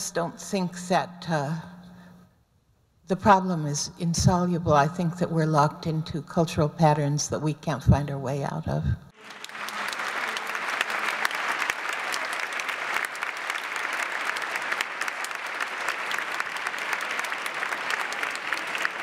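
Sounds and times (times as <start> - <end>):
audience applauding: 9.2 - 19.0.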